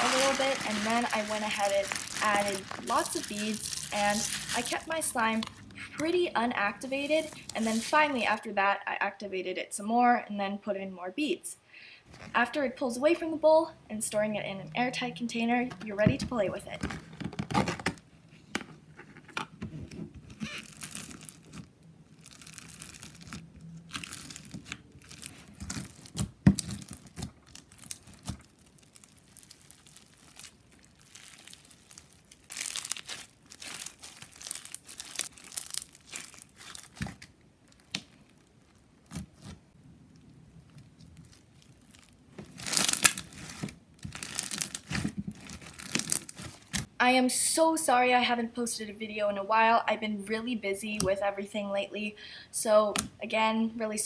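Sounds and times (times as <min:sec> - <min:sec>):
slime crackling when squished: 0:00.0 - 0:06.1, 0:20.4 - 0:46.9.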